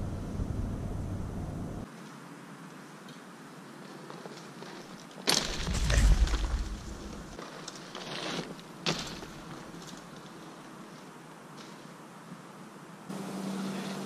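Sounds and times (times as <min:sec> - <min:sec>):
heavy low rumble: 0:00.0 - 0:01.8, 0:05.6 - 0:07.4
bike rattle: 0:04.0 - 0:10.6
bike thump: 0:05.2 - 0:10.1.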